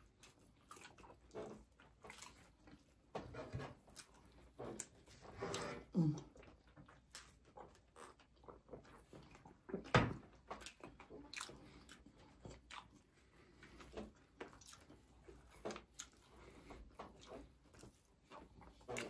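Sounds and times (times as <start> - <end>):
people biting and chewing: 0.0 - 19.0
wet smacks and clicks: 6.8 - 19.0.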